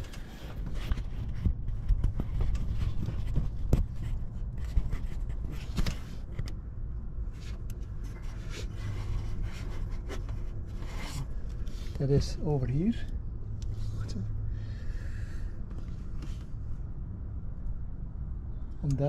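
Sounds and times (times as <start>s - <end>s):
microphone handling clicks and rubbing: 0.0s - 6.6s, 15.6s - 16.7s.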